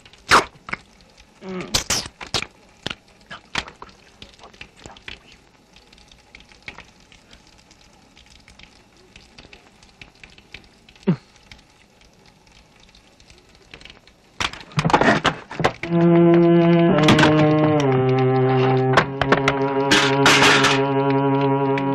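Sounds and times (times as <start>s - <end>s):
faint crackle: 0.0s - 21.9s
low loud musical drone: 15.9s - 21.9s.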